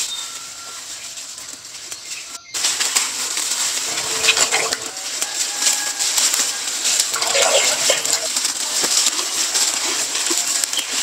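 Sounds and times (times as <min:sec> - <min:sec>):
birds calling: 0:03.8 - 0:05.1, 0:07.0 - 0:08.5
splashing in muddy water: 0:03.8 - 0:05.2, 0:07.0 - 0:08.6
dove cooing: 0:07.1 - 0:08.4.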